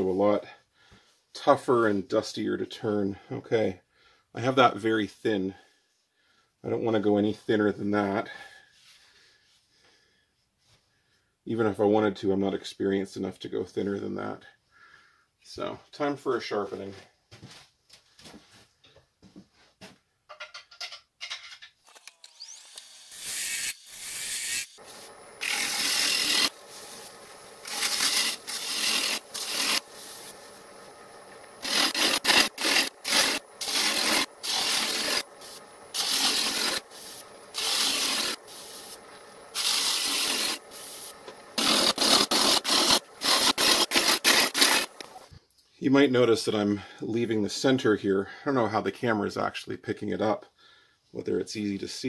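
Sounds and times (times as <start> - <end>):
gouge scraping wood on a lathe: 25.0 - 45.2.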